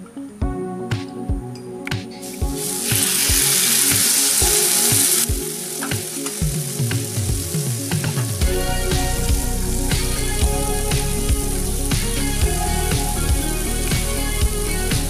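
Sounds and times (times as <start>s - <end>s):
fish sizzling on a hot griddle: 2.6s - 8.2s.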